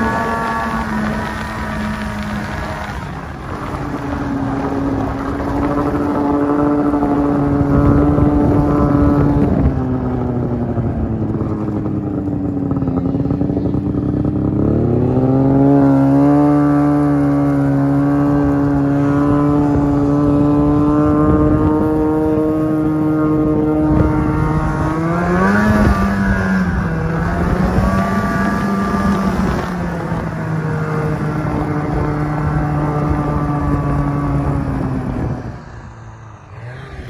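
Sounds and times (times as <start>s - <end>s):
snowmobile engine running: 0.0s - 37.0s.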